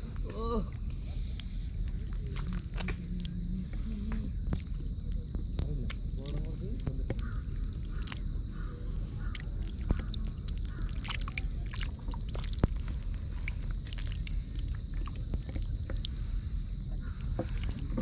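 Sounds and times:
steady low rumble: 0.0 - 18.0
fish flapping in wet mud: 5.9 - 18.0.

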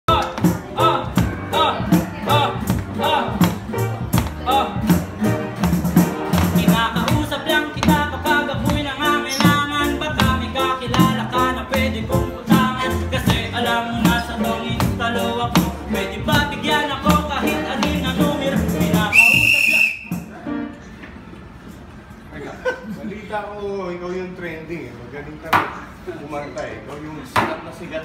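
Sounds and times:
man singing through microphone: 0.1 - 5.0, 6.4 - 19.8
music with steady beat: 0.1 - 20.4.

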